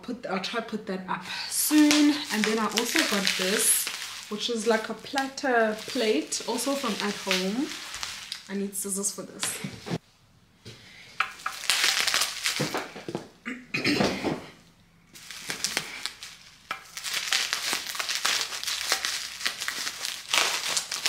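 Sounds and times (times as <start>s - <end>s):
packaging crinkling and rustling: 1.4s - 9.6s, 11.3s - 13.2s, 15.2s - 21.0s
scissors cutting packaging: 1.6s - 8.5s, 15.4s - 21.0s.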